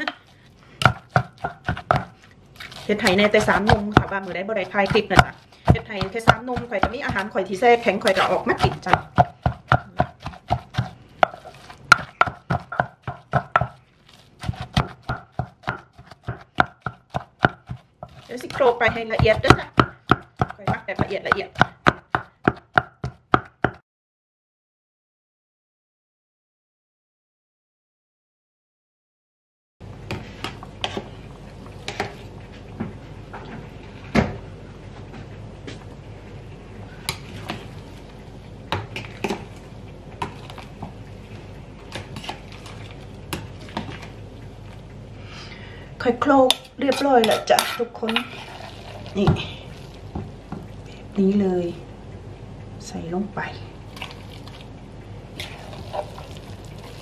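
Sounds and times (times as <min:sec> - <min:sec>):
steady low hum: 0:00.0 - 0:23.3, 0:29.8 - 0:57.0
wooden pestle pounding in mortar: 0:00.8 - 0:02.1, 0:03.0 - 0:07.4, 0:08.1 - 0:13.8, 0:14.4 - 0:23.8.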